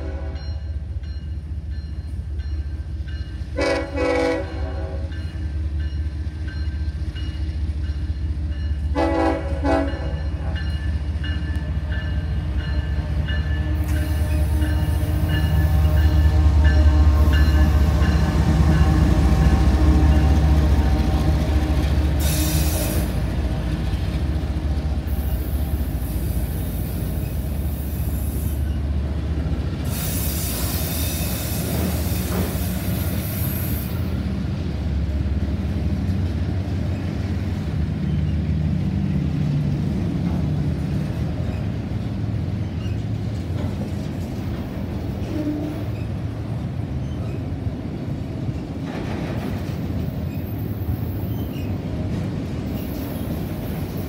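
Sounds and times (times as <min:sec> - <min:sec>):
locomotive horn blasts: 0:00.0 - 0:00.6, 0:03.6 - 0:05.2, 0:08.9 - 0:10.7, 0:12.8 - 0:23.2, 0:45.2 - 0:46.0
locomotive engine rumbling: 0:00.0 - 0:54.0.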